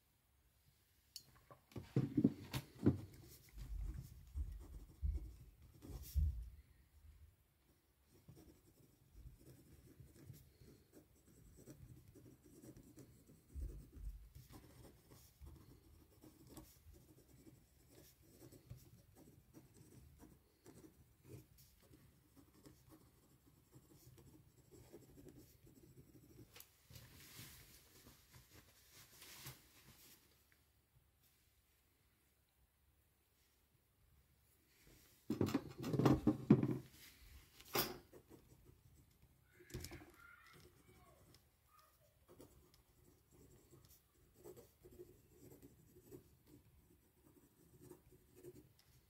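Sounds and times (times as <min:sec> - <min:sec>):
pen scratching on paper: 0:02.2 - 0:06.4, 0:08.1 - 0:26.6, 0:40.5 - 0:49.0
knocks on desk: 0:35.3 - 0:36.8.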